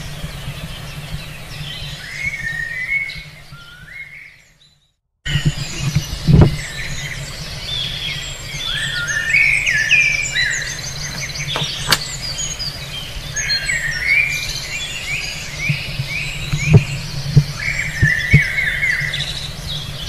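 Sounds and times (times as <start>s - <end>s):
birds chirping chorus: 0.0s - 20.0s
sharp click: 11.1s - 12.2s.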